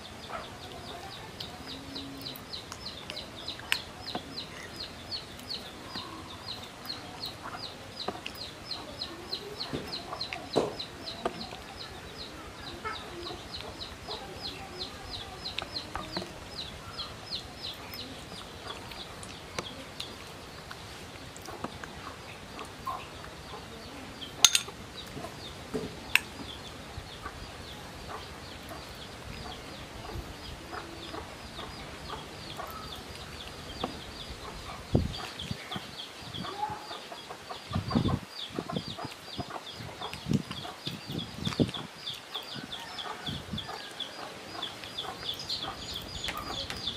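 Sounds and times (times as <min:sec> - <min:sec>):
chicks peeping: 0:00.0 - 0:46.9
metal spoon clinking on bowl: 0:24.4 - 0:24.7.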